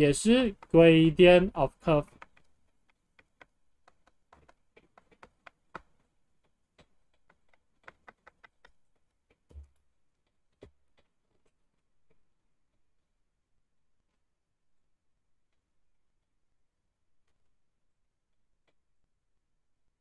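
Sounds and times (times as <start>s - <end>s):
stylus tapping on tablet screen: 0.3s - 9.7s.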